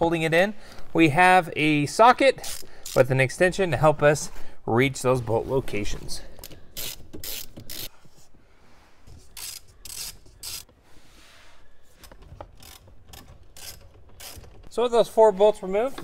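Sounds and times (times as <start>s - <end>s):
hand ratchet clicking: 2.4s - 3.1s, 6.4s - 8.0s, 9.4s - 10.7s, 12.0s - 14.8s.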